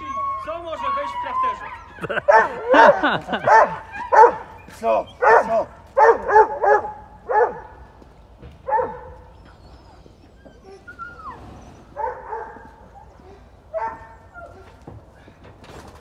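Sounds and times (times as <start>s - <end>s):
dog barking: 2.2s - 4.6s, 5.2s - 7.8s, 8.6s - 9.3s, 12.0s - 12.9s, 13.7s - 14.6s.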